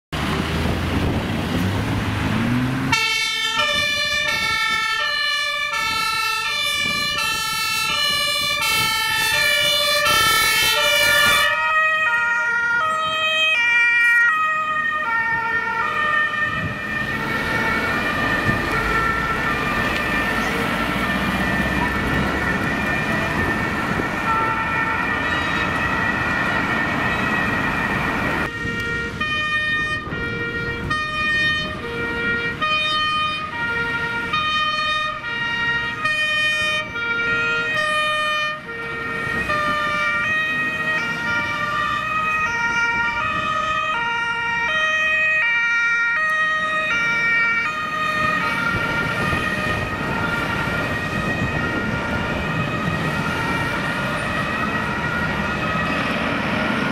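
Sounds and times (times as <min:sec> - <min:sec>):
engine and road noise: 0:00.1 - 0:56.9
two-tone sirens: 0:00.2 - 0:56.9.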